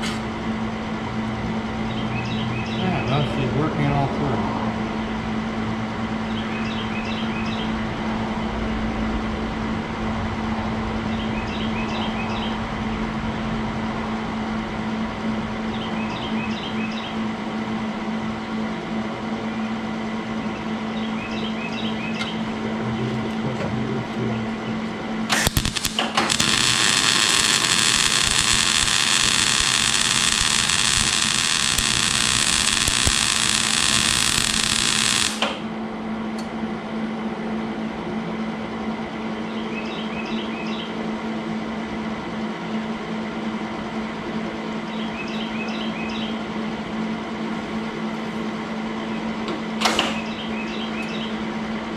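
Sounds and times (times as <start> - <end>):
welding arc burning: 0.0 - 0.3, 25.3 - 35.7
steady hum: 0.0 - 51.9.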